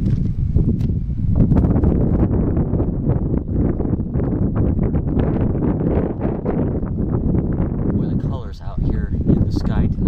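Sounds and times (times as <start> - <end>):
gusty wind buffeting microphone: 0.0 - 10.0.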